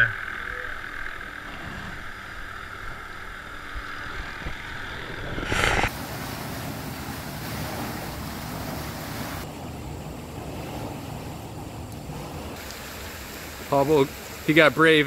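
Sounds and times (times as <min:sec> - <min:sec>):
water rushing: 0:03.4 - 0:15.0
loud noise burst: 0:04.0 - 0:07.2.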